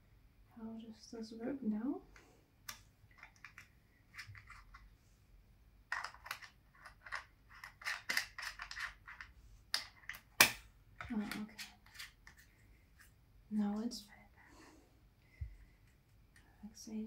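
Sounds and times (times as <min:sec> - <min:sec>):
plastic parts clicking and scraping: 0:02.2 - 0:04.9, 0:05.9 - 0:12.5.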